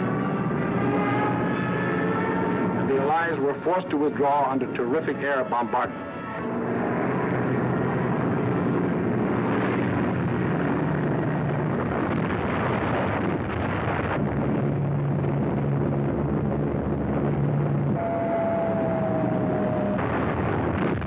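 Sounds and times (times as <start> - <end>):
aircraft engines droning: 0.0 - 21.0
explosions: 9.0 - 21.0
anti-aircraft gunfire: 19.7 - 21.0.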